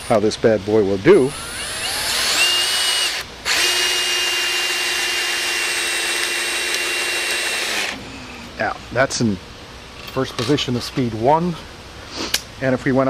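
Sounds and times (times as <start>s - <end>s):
drill motor whine: 1.3s - 8.0s.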